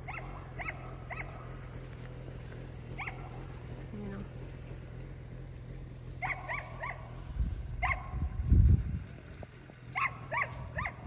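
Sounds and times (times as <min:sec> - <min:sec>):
low rumble: 0:07.2 - 0:09.7.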